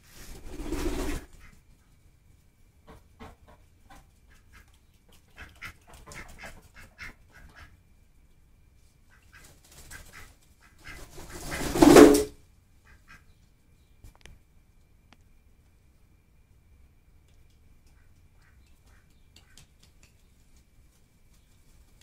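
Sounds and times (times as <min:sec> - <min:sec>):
ducks making soft sounds: 0:00.0 - 0:02.2, 0:02.8 - 0:08.1, 0:08.9 - 0:11.9, 0:12.7 - 0:13.6, 0:17.5 - 0:22.0
duck flapping wings: 0:00.1 - 0:01.5, 0:09.3 - 0:12.3.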